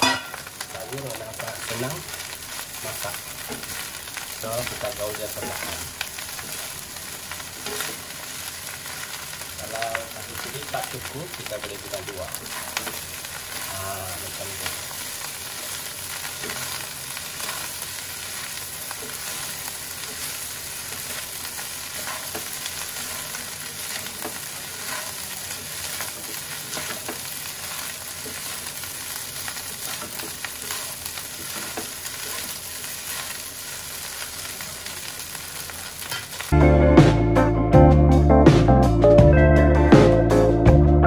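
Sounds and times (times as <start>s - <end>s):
rice sizzling in wok: 0.0s - 36.6s
spatula scraping and tapping pan: 21.9s - 23.4s.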